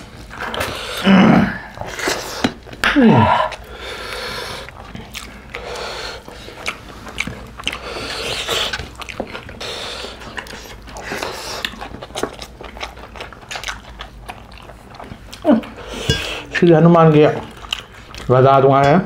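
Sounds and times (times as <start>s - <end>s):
chewing and lip smacks: 3.5s - 18.4s.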